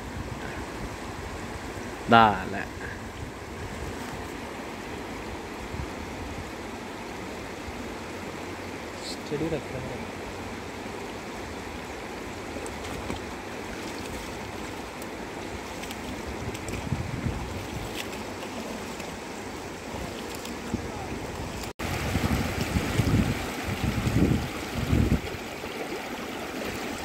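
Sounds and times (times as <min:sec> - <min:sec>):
river water rushing over rocks: 0:04.4 - 0:27.0
wind buffeting microphone: 0:15.5 - 0:18.4, 0:19.7 - 0:27.0.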